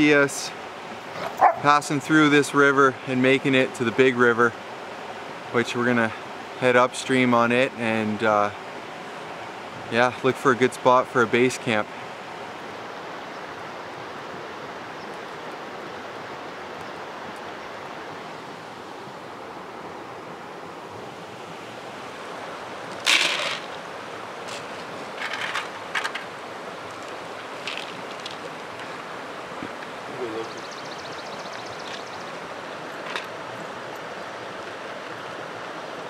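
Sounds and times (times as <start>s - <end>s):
flowing river water: 0.0s - 36.0s
dry kibble rattling into bowl: 23.0s - 23.7s, 24.5s - 26.3s, 27.0s - 28.5s.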